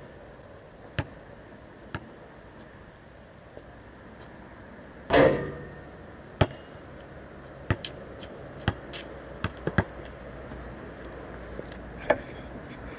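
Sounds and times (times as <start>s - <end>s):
basketball bouncing on asphalt: 0.9s - 1.2s, 1.9s - 2.2s, 6.4s - 6.6s, 7.6s - 8.0s, 8.6s - 10.1s
basketball clanging on hoop: 5.1s - 5.8s.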